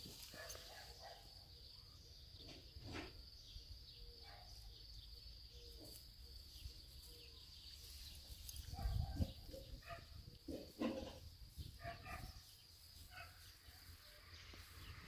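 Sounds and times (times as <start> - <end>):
soft rustles in grass: 0.0 - 1.3, 5.6 - 15.0
high insect trill: 11.2 - 15.0.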